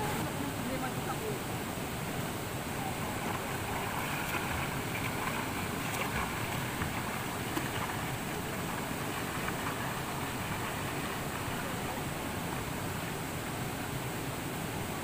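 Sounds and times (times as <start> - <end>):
flowing river water: 0.0 - 15.0
person swimming splashing: 2.8 - 13.0.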